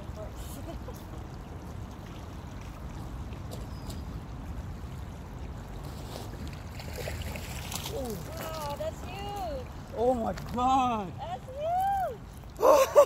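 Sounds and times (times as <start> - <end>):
creek water running: 0.0 - 13.0.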